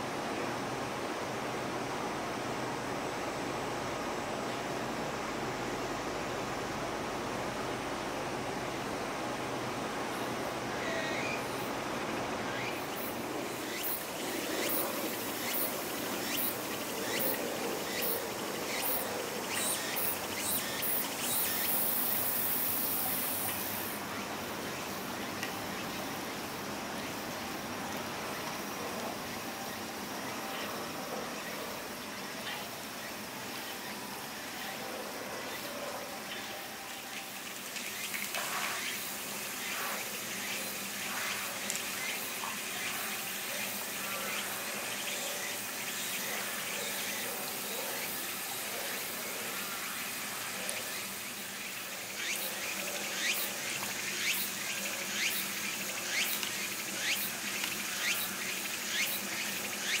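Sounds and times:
insects buzzing: 0.0s - 60.0s
water hiss: 36.4s - 60.0s.

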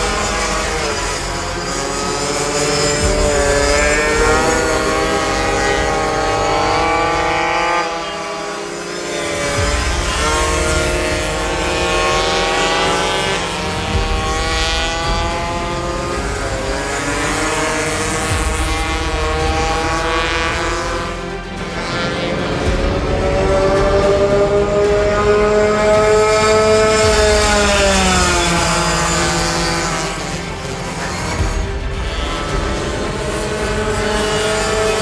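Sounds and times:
small motorbike engines revving: 0.0s - 35.0s.

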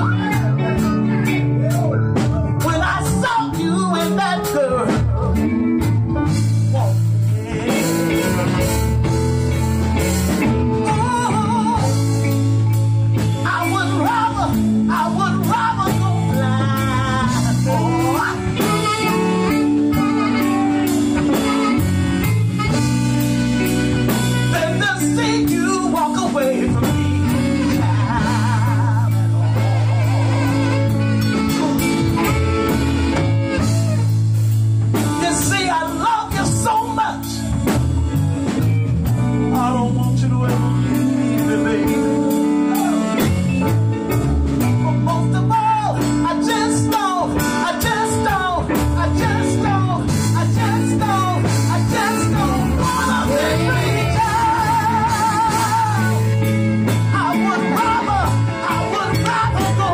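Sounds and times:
drum kit beat: 0.0s - 59.9s
electric bass: 0.0s - 59.9s
electric guitar: 0.0s - 59.9s
vocalists singing with vibrato: 24.9s - 32.0s, 46.6s - 59.9s.

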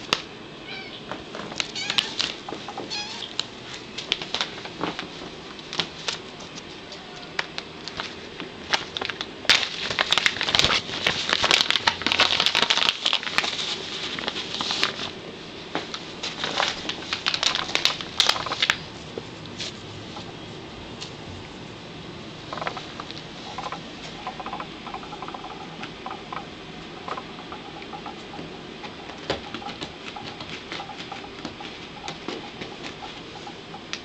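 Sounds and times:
cat scratching and rustling: 7.9s - 15.2s, 15.8s - 20.3s.

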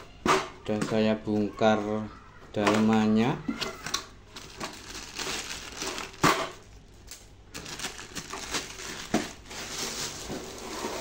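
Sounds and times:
cardboard and plastic rustling: 2.6s - 6.8s, 7.5s - 11.0s.

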